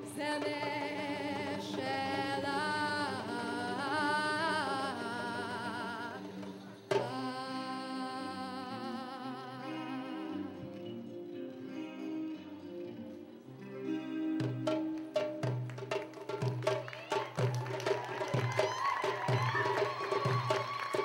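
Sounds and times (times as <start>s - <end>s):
person singing with vibrato: 0.0s - 11.0s
live band music: 9.7s - 21.0s.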